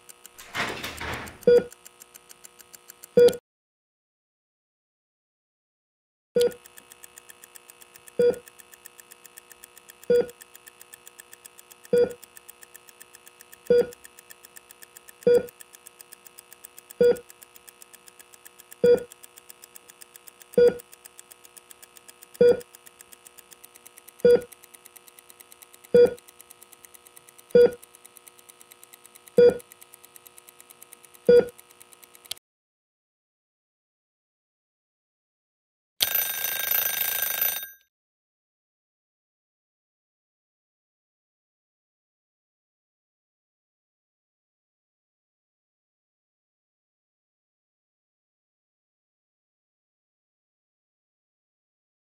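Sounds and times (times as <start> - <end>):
patient monitor beeping: 0.4 - 1.8, 9.6 - 10.4, 11.9 - 12.3, 15.2 - 15.6, 16.9 - 17.3, 18.8 - 19.2, 20.5 - 20.8, 22.4 - 22.7, 24.2 - 24.5, 25.9 - 26.2, 27.5 - 27.8, 29.4 - 29.7
faint fast ticking: 1.4 - 3.2, 6.4 - 32.4.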